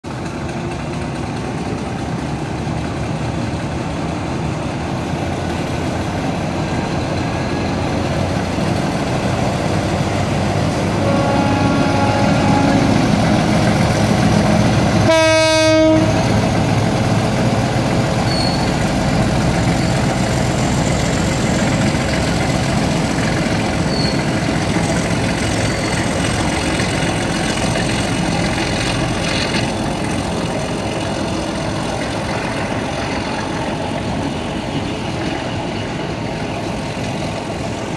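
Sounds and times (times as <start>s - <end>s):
train wheels rumbling: 0.0s - 37.9s
locomotive horn blast: 10.8s - 13.7s, 15.0s - 16.4s.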